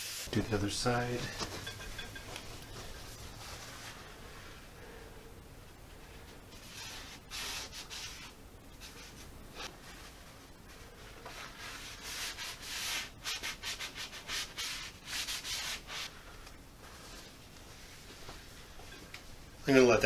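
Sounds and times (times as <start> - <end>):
paper towel rubbing wood: 6.6 - 16.2.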